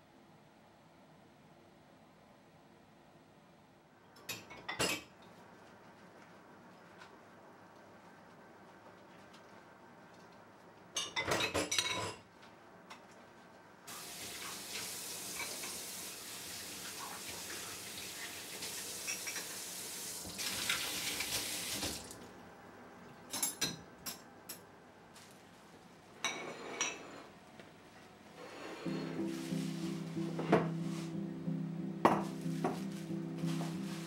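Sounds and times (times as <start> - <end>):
ceramic dishes clinking on rack: 11.0 - 12.2.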